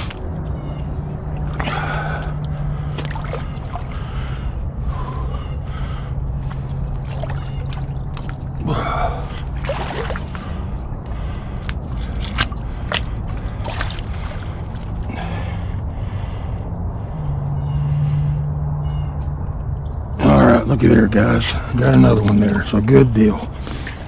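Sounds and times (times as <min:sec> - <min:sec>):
boots squelching through mud: 0:01.4 - 0:04.0, 0:06.3 - 0:08.7, 0:09.3 - 0:15.3
man breathing heavily: 0:01.4 - 0:07.0, 0:08.6 - 0:09.6, 0:10.3 - 0:18.7.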